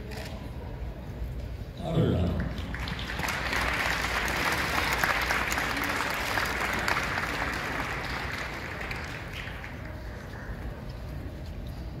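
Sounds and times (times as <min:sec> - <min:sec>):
audience applauding: 0:02.4 - 0:10.1.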